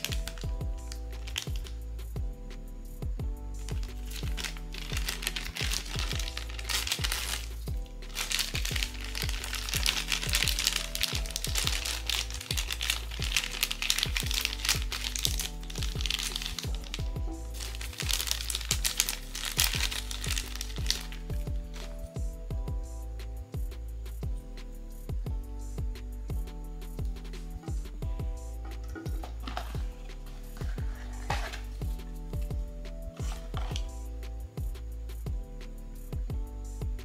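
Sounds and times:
plastic packaging crinkling: 0.0s - 1.7s, 3.6s - 22.0s, 28.7s - 31.9s, 33.2s - 33.9s
background music with steady beat: 0.0s - 37.0s.

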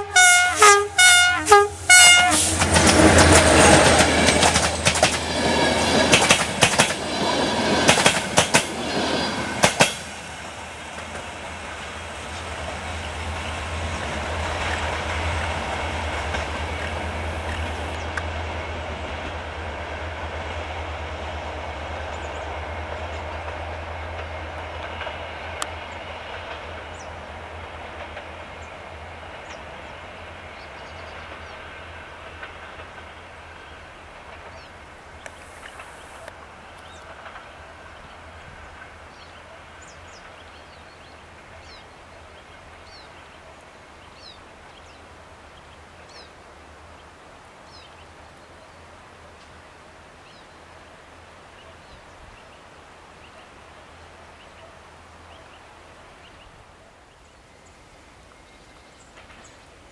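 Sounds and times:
diesel locomotive horn blasts: 0.0s - 4.0s
train rumble: 0.0s - 59.9s
train wheels clattering over rail joints: 2.4s - 11.9s.

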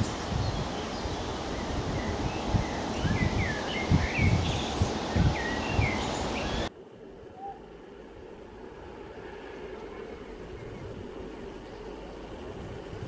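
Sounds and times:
small birds chirping: 0.0s - 6.7s
steady noise bed: 0.0s - 13.0s.

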